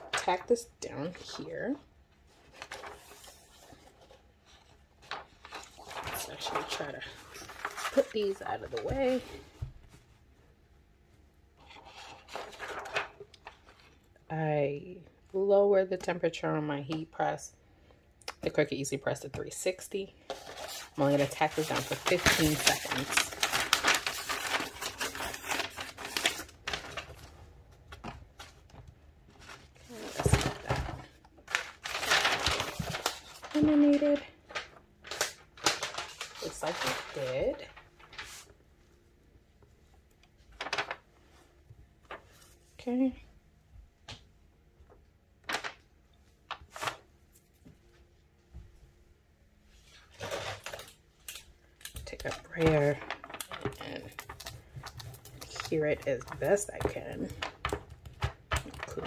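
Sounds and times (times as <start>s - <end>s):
paper rustling and crinkling: 0.0s - 10.3s, 11.6s - 14.1s, 20.2s - 38.6s, 40.4s - 42.6s, 44.9s - 45.9s, 46.5s - 47.8s, 49.7s - 59.0s.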